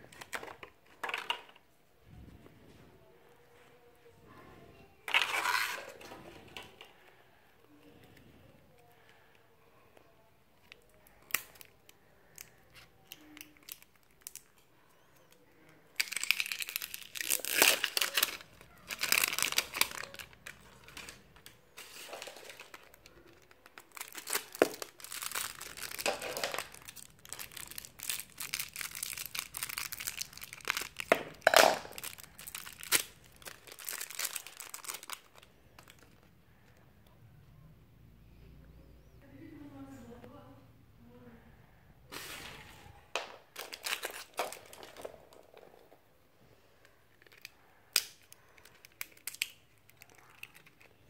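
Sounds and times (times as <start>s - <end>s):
wrapper crinkling and tearing: 5.1s - 6.6s, 10.7s - 14.6s, 16.0s - 36.3s, 43.5s - 45.8s, 47.2s - 51.0s.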